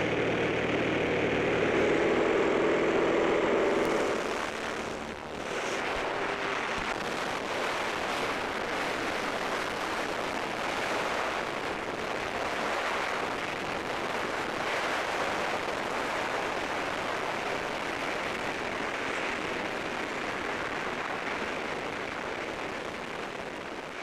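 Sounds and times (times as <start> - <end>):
plane engine noise: 0.0 - 24.0
wind rushing: 1.4 - 11.8.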